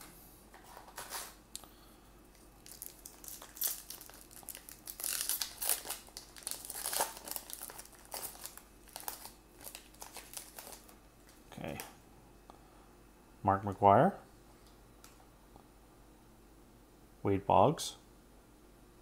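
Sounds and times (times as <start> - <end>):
foil wrapper crinkling: 2.4 - 11.4.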